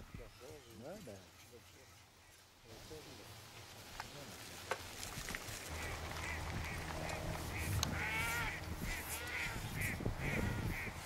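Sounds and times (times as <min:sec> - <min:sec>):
low steady rumble: 0:05.7 - 0:10.4
bird calling: 0:05.7 - 0:11.0.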